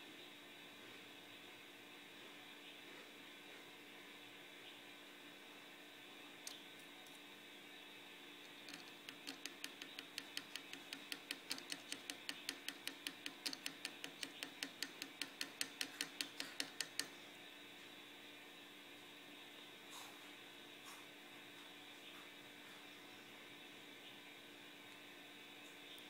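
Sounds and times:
stick tapping crystal clicks: 8.6 - 17.1.

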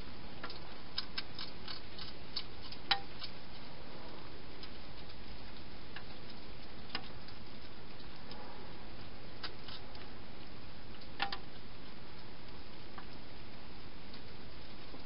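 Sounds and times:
steady hiss: 0.0 - 15.0
sharp clicks and ticks: 0.4 - 3.6
hedgehog eating from a bowl: 0.4 - 15.0.

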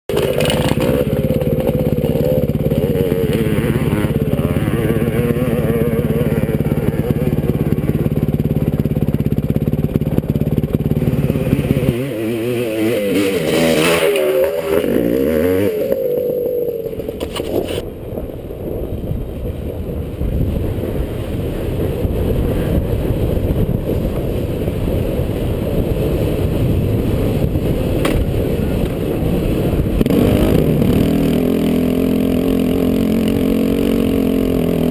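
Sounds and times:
dirt bike engine revving: 0.1 - 17.8, 29.6 - 34.9
dirt bike engine running: 0.1 - 34.9.

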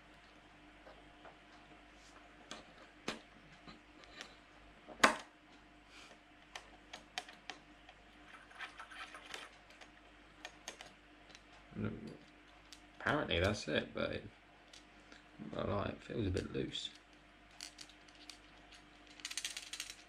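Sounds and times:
fishing reel parts clicking: 16.9 - 20.0.

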